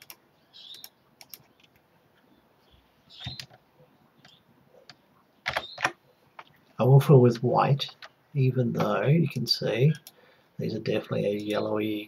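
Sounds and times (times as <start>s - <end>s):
mouse and keyboard clicks: 0.0s - 1.8s, 3.2s - 3.6s.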